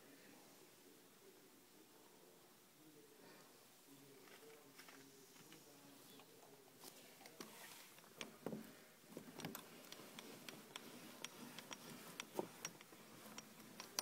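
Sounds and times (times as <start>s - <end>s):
faint irregular clicks: 7.2s - 14.0s.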